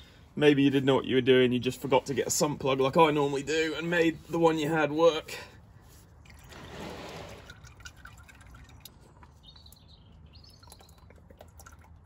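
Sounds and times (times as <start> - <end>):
oil dripping and trickling: 5.3 - 12.0
bird chirps: 8.5 - 11.4.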